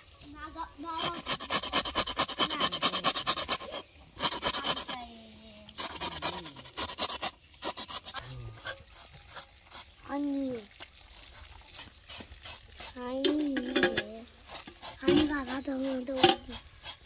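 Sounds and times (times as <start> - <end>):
hands scrubbing wet tripe: 0.8 - 17.0
knife scraping tripe: 1.0 - 5.1, 5.8 - 9.9, 14.4 - 17.0.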